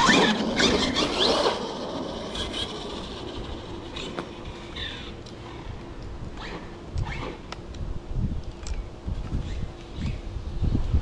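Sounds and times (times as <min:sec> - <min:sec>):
electric toy car motor whine: 0:00.0 - 0:05.2.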